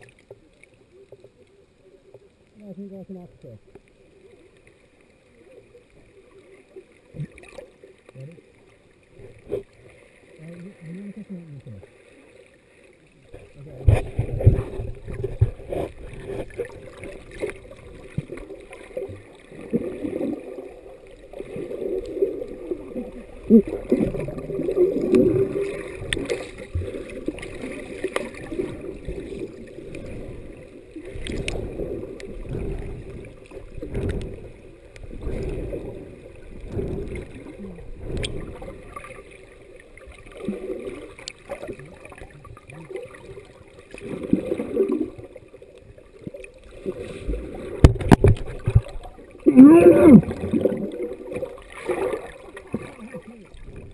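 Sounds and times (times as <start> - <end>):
muffled underwater water surges: 0.0 - 53.9
faint clicks: 3.4 - 5.1, 31.1 - 31.6, 38.1 - 38.6.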